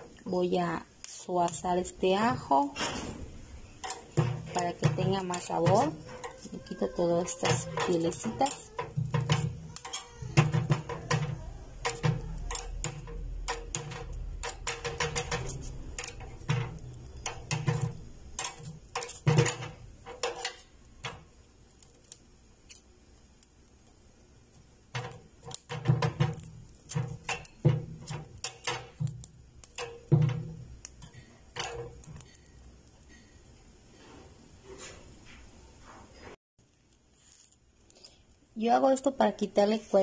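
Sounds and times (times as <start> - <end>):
metal utensil clicking on iron grate: 3.7 - 22.9, 24.5 - 33.2.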